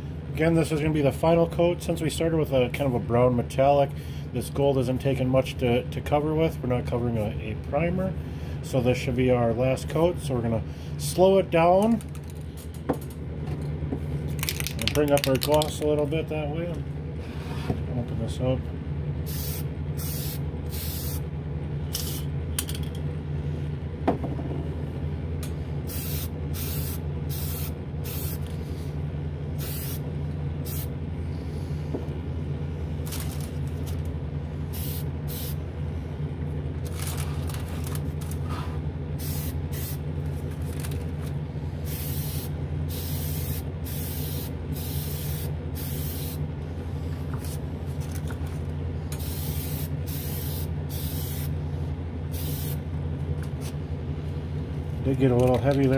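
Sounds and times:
steady low hum: 0.0s - 55.9s
aerosol spray can hissing: 19.3s - 21.2s, 25.9s - 28.5s, 29.6s - 30.0s, 41.9s - 46.4s, 49.2s - 51.5s, 52.3s - 52.8s.

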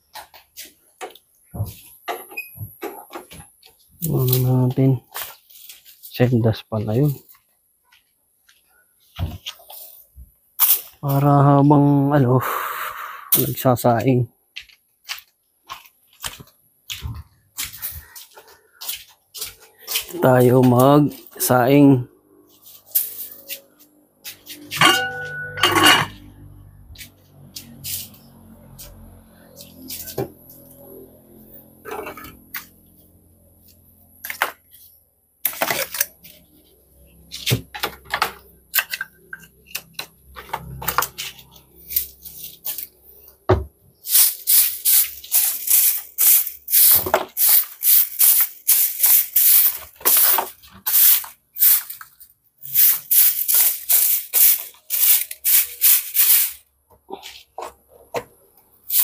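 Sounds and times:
broom scraping on concrete: 22.4s - 26.2s, 27.0s - 30.8s, 40.6s - 43.2s.

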